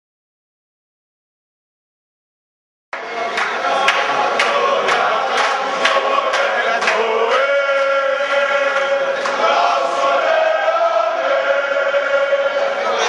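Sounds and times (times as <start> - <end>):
crowd chanting in unison: 3.0 - 13.0.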